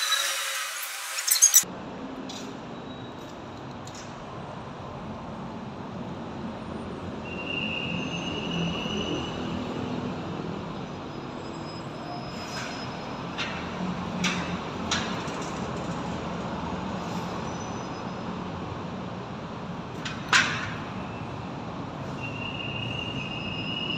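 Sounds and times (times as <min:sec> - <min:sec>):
high thin squeal: 0:00.0 - 0:01.6, 0:22.0 - 0:23.9.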